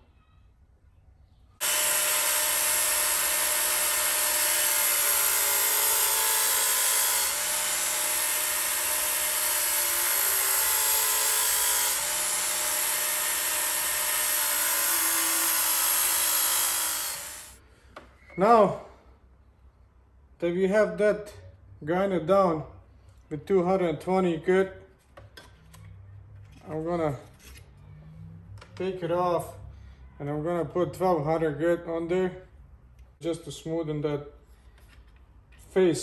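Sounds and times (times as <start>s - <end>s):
belt sharpener grinding steel: 1.6s - 17.6s.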